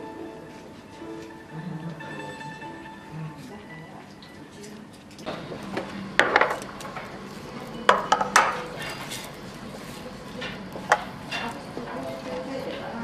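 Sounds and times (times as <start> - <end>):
crockery and cutlery clinking: 6.2 - 13.0.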